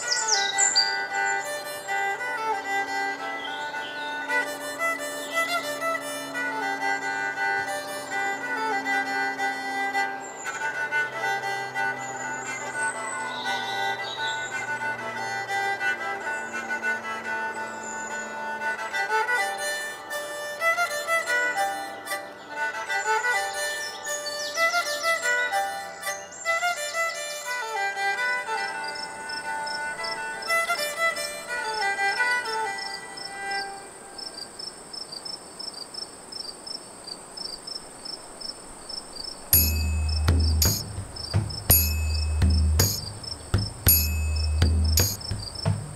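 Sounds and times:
slow instrumental music: 0:00.0 - 0:33.6, 0:39.6 - 0:45.9
crickets chirping: 0:28.5 - 0:30.7, 0:31.6 - 0:45.9
loud low hum: 0:39.6 - 0:45.9.

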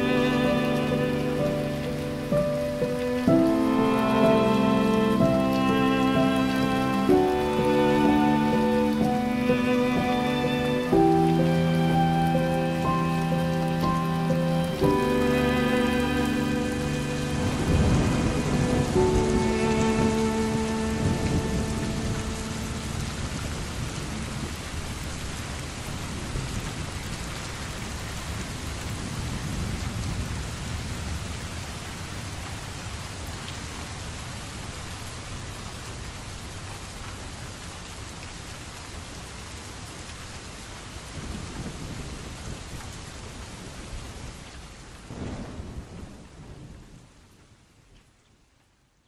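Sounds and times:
heavy rain: 0:00.0 - 0:49.0
thunder rumbling: 0:14.8 - 0:27.0, 0:45.1 - 0:47.2.

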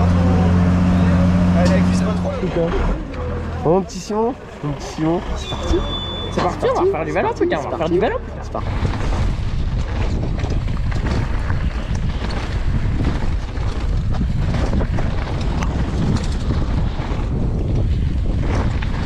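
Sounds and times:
tyres rolling over dirt: 0:00.0 - 0:19.0
wind buffeting microphone: 0:05.2 - 0:19.0
bike clicks and rattles: 0:08.7 - 0:19.0.

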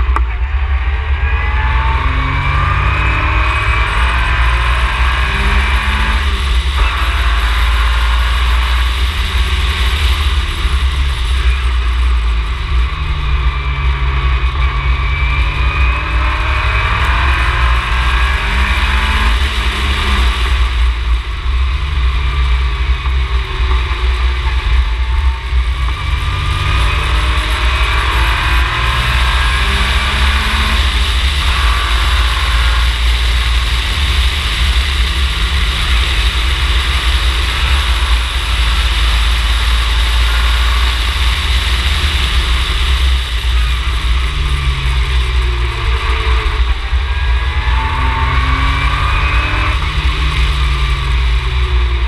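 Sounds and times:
race car engine revving: 0:00.0 - 0:52.0.

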